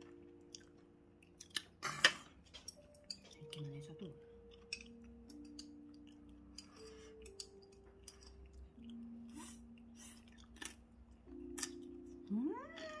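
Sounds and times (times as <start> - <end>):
faint background music: 0.0 - 13.0.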